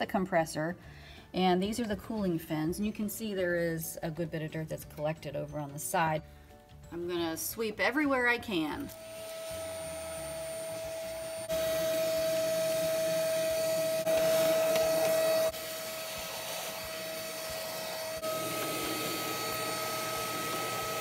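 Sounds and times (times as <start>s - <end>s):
vacuum cleaner whining: 8.9s - 21.0s.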